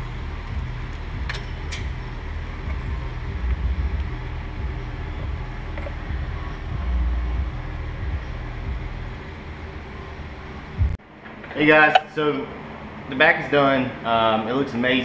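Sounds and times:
steady low rumble: 0.0s - 11.1s.

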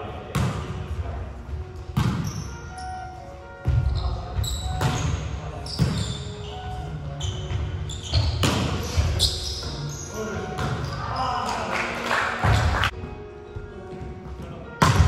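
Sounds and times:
sneakers squeaking on hardwood: 1.8s - 11.4s
volleyball struck by hands: 14.8s - 15.0s.

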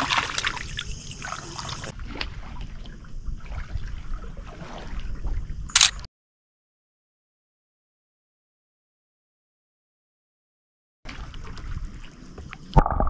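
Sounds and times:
seawater sloshing and trickling: 0.0s - 5.7s, 11.1s - 12.7s
wind rumbling on microphone: 1.8s - 6.0s.

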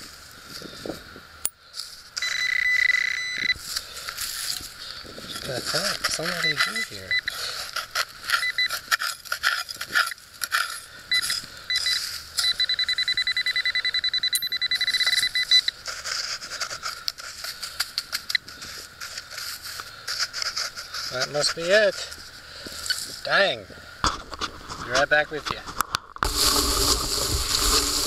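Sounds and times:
metal detector pinpointer beeping: 2.2s - 3.6s, 6.1s - 7.4s, 8.2s - 15.8s
dry soil scraping: 3.5s - 12.5s, 15.0s - 23.6s, 24.2s - 28.0s.

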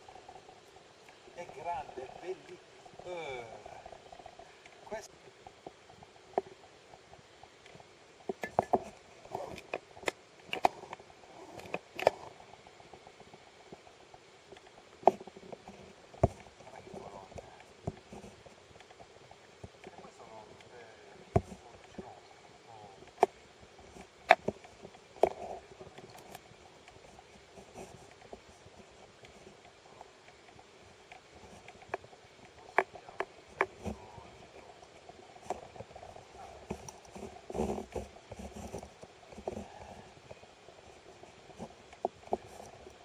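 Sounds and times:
faint hiss: 0.0s - 43.0s
sharp clicks and light knocks: 4.6s - 12.3s, 23.0s - 40.4s.

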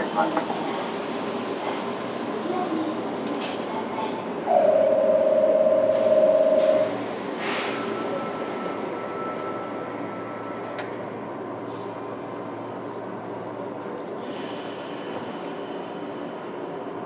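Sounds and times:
electric train car humming: 4.2s - 17.0s
steady high tone: 4.5s - 7.2s.

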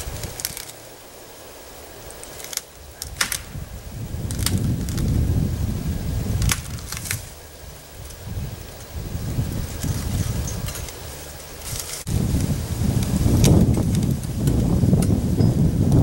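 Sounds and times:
wood cracking and snapping: 0.0s - 0.8s, 2.2s - 5.3s, 6.4s - 7.4s, 11.6s - 12.4s, 13.0s - 15.2s
wind rumble on microphone: 0.0s - 16.0s.

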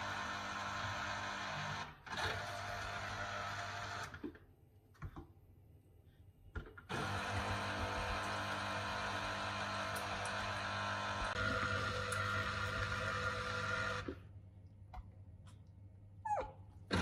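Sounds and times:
juicer motor humming: 0.0s - 4.3s, 6.9s - 14.3s.

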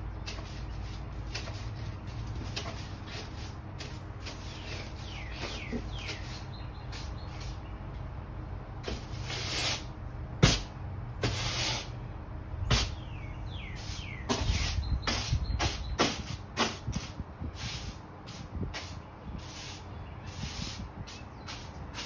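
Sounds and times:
bird chirps: 4.4s - 7.9s, 12.9s - 16.1s.

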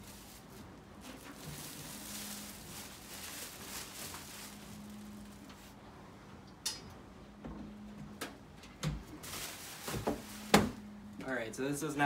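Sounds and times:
plastic wrapping rustling: 0.0s - 5.8s, 9.2s - 10.8s.

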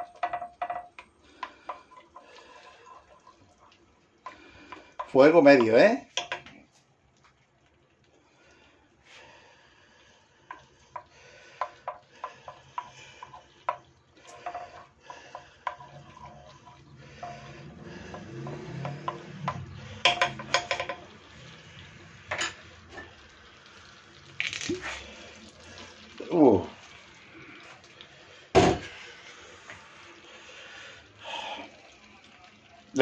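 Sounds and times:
wooden spoon tapping clay pot: 0.0s - 2.3s, 5.0s - 6.5s, 10.5s - 21.1s
butter melting in oil: 0.0s - 33.0s.

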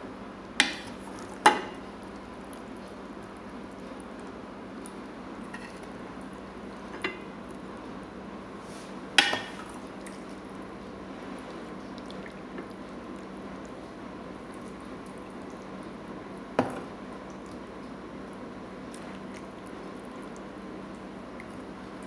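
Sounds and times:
broth slopping and dripping: 9.4s - 16.2s, 17.0s - 22.0s.

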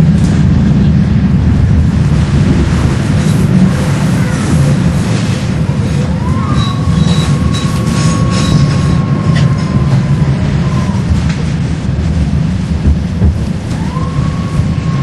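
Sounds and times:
tram rumbling on rails: 0.0s - 15.0s
high wheel squeal: 5.8s - 11.1s.

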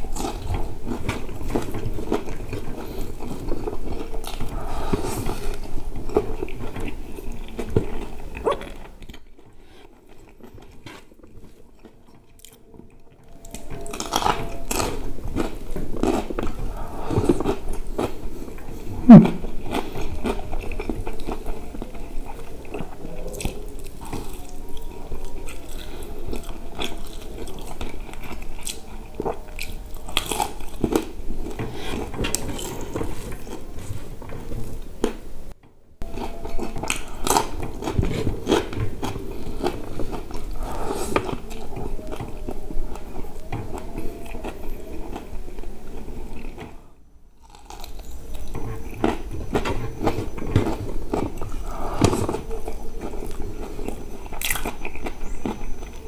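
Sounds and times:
crunching fried chicken: 13.3s - 35.2s, 47.4s - 56.0s.

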